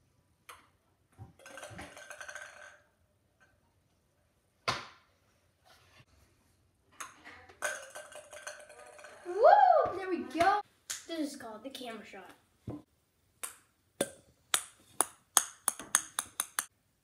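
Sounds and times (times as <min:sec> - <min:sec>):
ping pong ball bouncing: 0:13.4 - 0:16.7.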